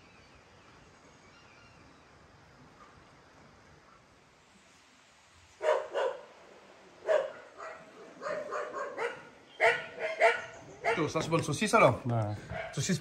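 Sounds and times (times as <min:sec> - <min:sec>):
dog barking: 0:05.6 - 0:06.3, 0:07.0 - 0:11.1, 0:12.5 - 0:12.8.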